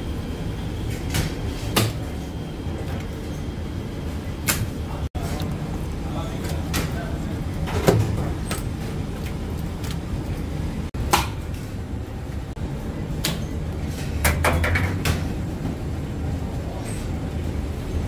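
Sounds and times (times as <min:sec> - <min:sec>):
low machinery hum: 0:00.0 - 0:18.0
sharp knocks and clatters: 0:13.2 - 0:15.3.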